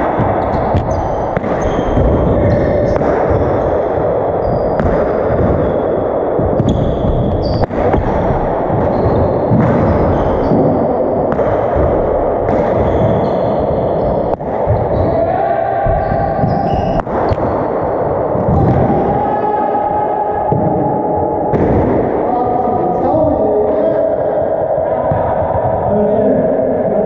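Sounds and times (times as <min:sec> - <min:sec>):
sneakers squeaking on floor: 0:00.2 - 0:15.3, 0:15.9 - 0:17.6.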